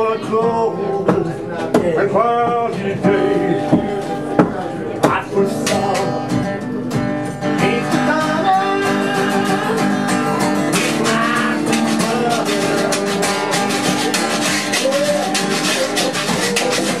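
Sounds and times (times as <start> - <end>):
man singing: 0.0 - 6.5, 7.4 - 17.0
acoustic guitar strumming: 0.0 - 17.0
scraped hand percussion: 8.9 - 17.0.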